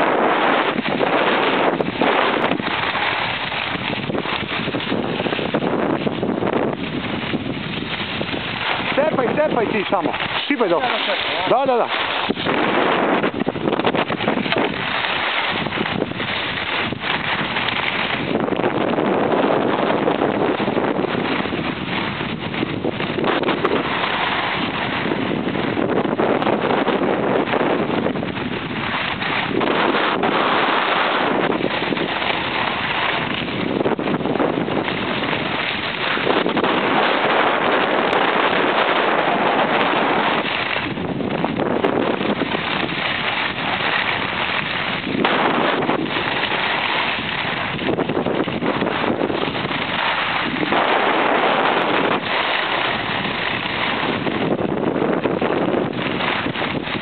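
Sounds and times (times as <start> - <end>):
skis hissing on snow: 0.0 - 13.6, 28.8 - 40.9, 41.8 - 54.6
wind rushing over microphone: 0.0 - 57.0.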